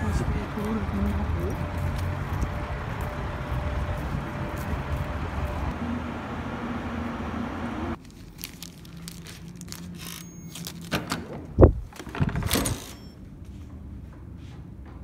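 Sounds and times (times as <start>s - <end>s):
street traffic: 0.0s - 10.9s
key card rustling in plastic pouch: 8.0s - 10.9s
door lock beep: 10.1s - 10.8s, 12.5s - 13.2s
door clattering open: 10.9s - 13.0s.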